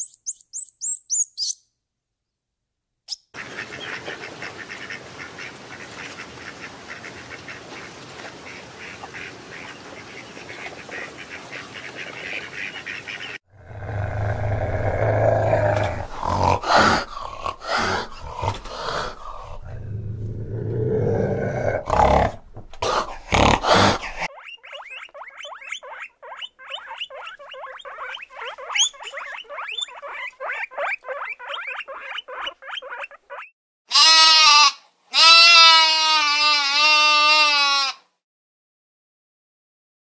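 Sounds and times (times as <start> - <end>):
guinea pigs squeaking: 0.0 - 1.6, 24.2 - 33.5
cat growling: 13.5 - 24.3
lamb bleating: 33.9 - 38.0.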